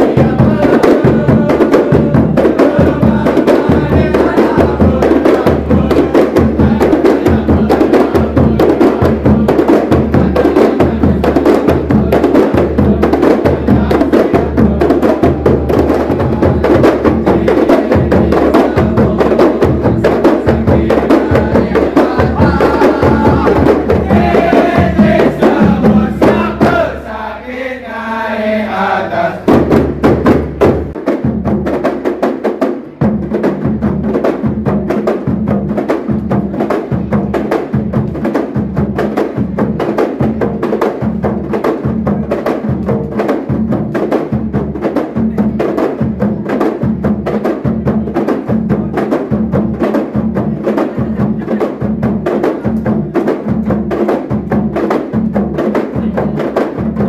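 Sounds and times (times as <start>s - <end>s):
hand-held frame drums beating: 0.0s - 27.0s, 29.4s - 57.0s
group of voices: 16.0s - 29.7s.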